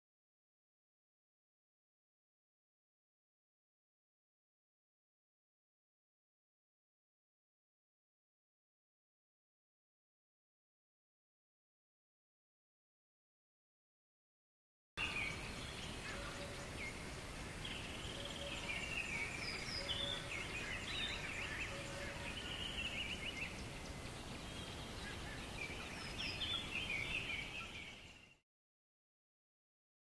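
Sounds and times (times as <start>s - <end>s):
flock of birds chirping: 15.0s - 28.4s
steady background hiss: 15.0s - 28.4s.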